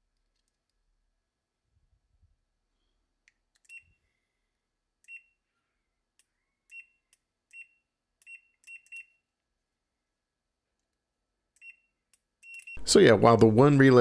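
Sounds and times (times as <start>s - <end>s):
short high beeps: 11.6s - 12.9s.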